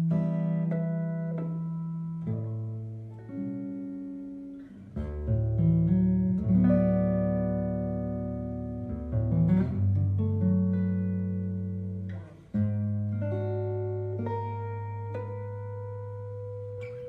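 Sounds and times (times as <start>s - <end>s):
slow guitar chord ballad: 0.0s - 17.0s.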